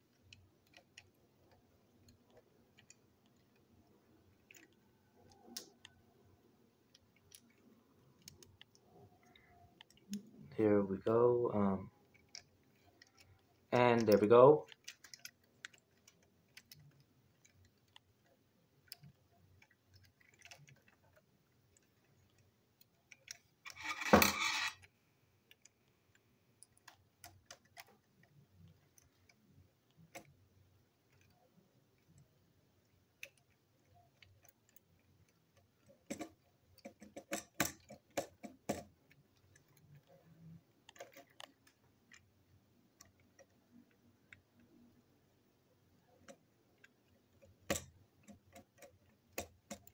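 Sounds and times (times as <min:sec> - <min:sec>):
small plastic clicks: 0:00.0 - 0:10.5, 0:12.0 - 0:45.0, 0:45.7 - 0:49.9
toy train motor unit handled: 0:23.7 - 0:24.8.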